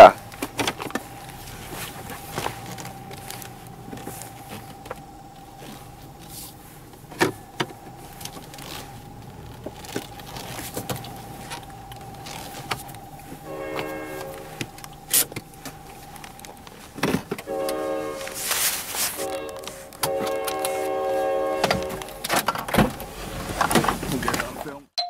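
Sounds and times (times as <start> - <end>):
handling knocks and clicks: 0.2 - 20.9, 21.6 - 24.7
car horn blast: 11.2 - 15.9, 17.3 - 23.2
faint high tone: 11.3 - 16.1.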